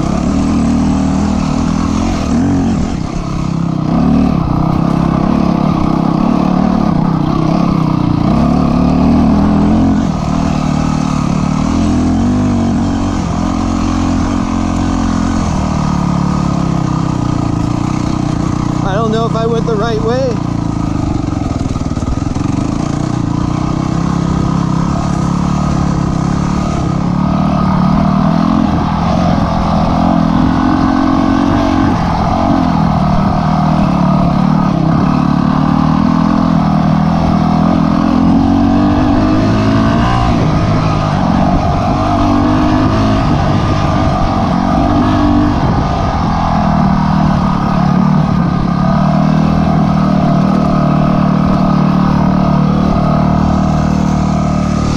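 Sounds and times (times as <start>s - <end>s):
dirt bike engine revving: 0.0s - 54.9s.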